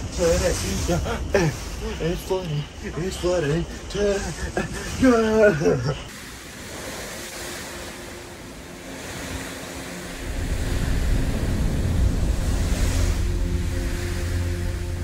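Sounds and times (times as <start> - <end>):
wind rushing: 6.4 - 15.0
wind buffeting microphone: 9.0 - 15.0.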